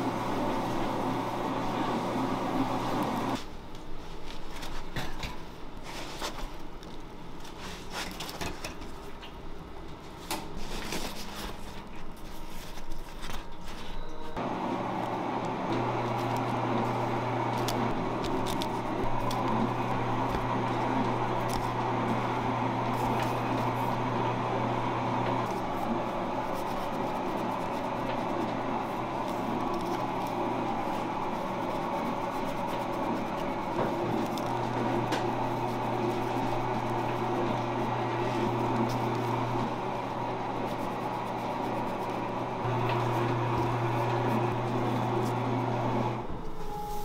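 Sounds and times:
kitchen machinery humming: 0.0 - 3.7, 4.8 - 47.0
gloved hands handling donuts: 25.5 - 45.5.

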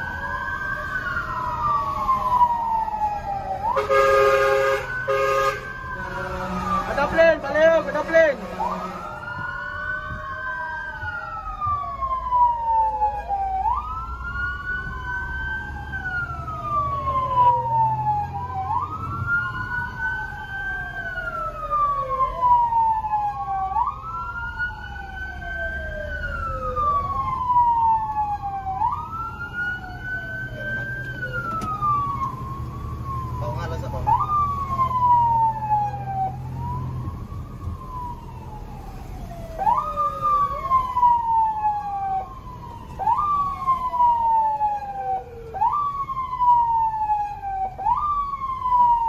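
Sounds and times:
fire truck sirens wailing: 0.0 - 49.0.

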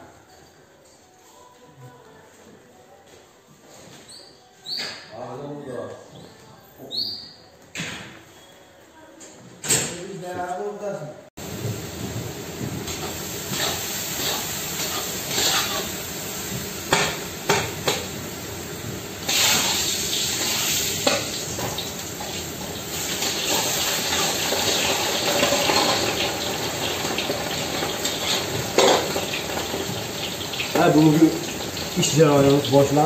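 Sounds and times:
meat sizzling in pans: 11.4 - 33.0
metal utensil scraping pan: 12.9 - 16.0.

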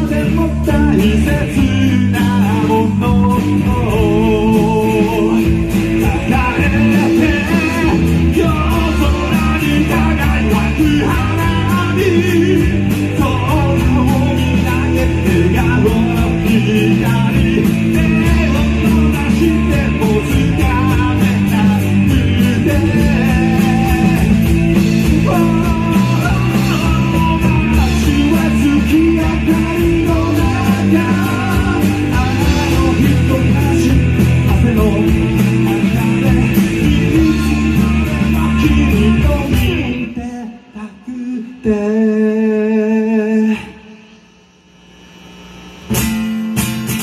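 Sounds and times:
person singing: 0.0 - 44.2
drums: 0.0 - 47.0
electric guitar: 0.0 - 47.0
strummed acoustic guitar: 45.9 - 47.0.

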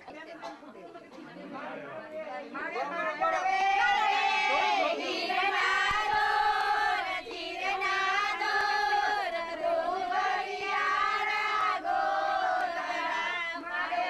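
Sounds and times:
women singing in unison: 3.3 - 14.0.

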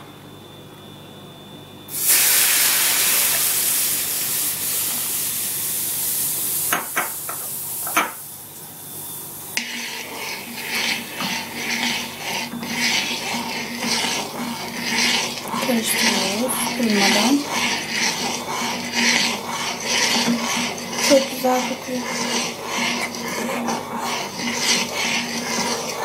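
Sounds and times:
liquid hissing in hot oil: 1.9 - 8.3, 9.6 - 26.0
spoon scraping metal pot: 9.6 - 26.0.

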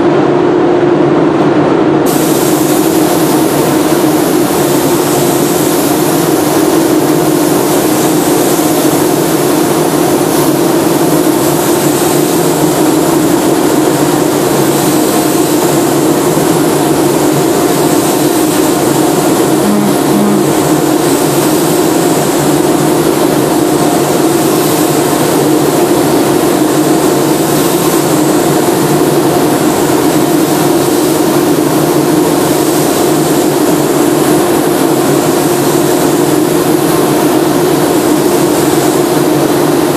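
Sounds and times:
spray booth airflow roar: 0.0 - 39.9
spray gun hissing: 2.1 - 39.9
low steady hum: 19.5 - 21.7.

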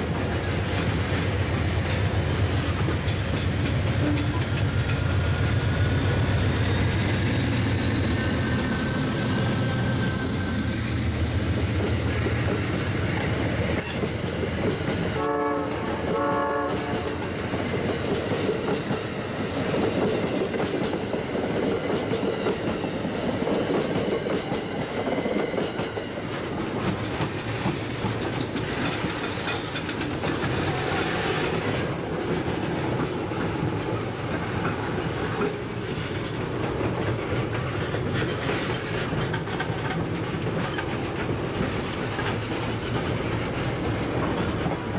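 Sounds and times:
train wheels clacking on rails: 0.0 - 44.9
train horn blasts: 15.2 - 17.3.

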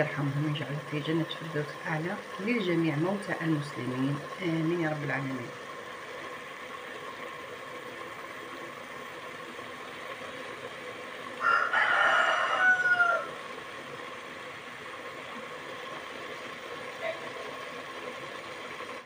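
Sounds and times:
faint hum: 0.0 - 19.0
rooster crowing: 11.4 - 13.4.

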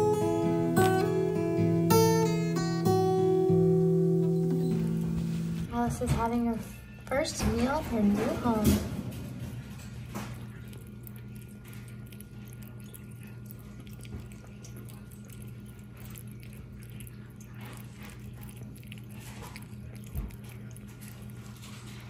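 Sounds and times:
kitten chewing and licking: 0.1 - 6.3, 9.2 - 22.0
steady low hum: 7.8 - 22.0.

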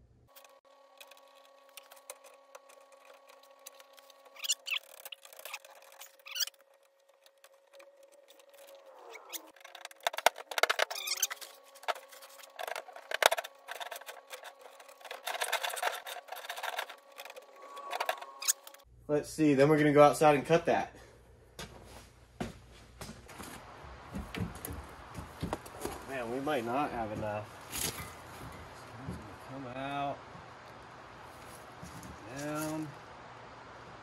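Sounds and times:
metal wire clicking and rattling: 0.3 - 18.8.

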